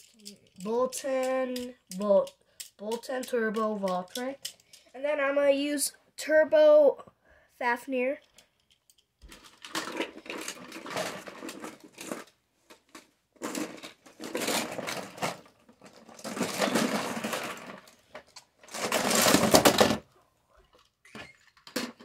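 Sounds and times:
plastic toy tops clattering: 0.0 - 5.2, 8.2 - 20.1.

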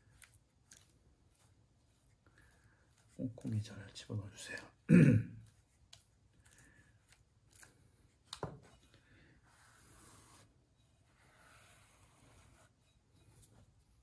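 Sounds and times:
brush rubbing clay bowl: 0.0 - 4.5, 5.4 - 7.7, 9.4 - 14.0
damp sponge wiping rim: 9.4 - 14.0.

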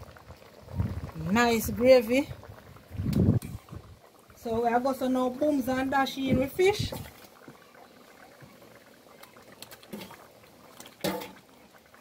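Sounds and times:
curry simmering in a pot: 0.0 - 12.0.

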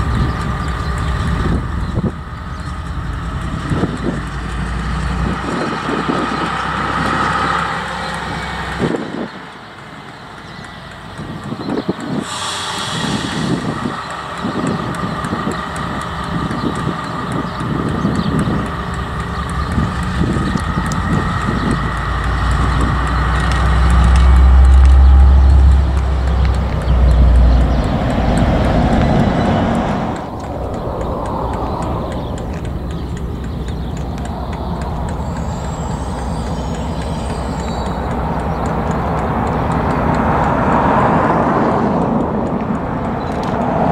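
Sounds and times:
locomotive engine rumble: 0.0 - 43.9
wagon wheels clicking: 0.0 - 43.9
high whine: 18.6 - 41.8.

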